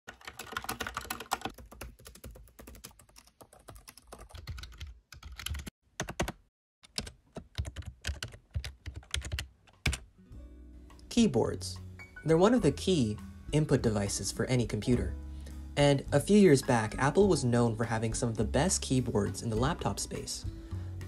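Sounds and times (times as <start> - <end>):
computer keyboard typing: 0.1 - 10.1.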